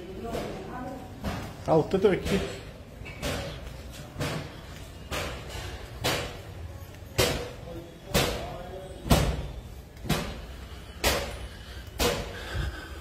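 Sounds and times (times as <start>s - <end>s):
footsteps on tiled floor: 0.1s - 7.6s.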